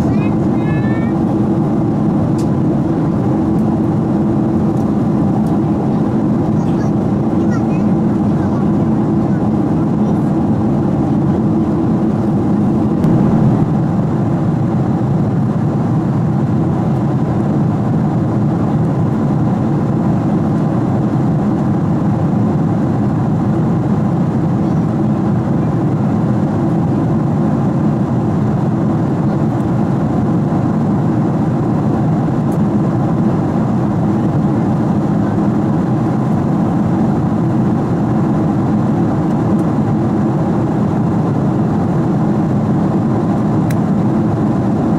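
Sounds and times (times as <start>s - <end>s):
airliner cabin rumble: 0.0s - 44.9s.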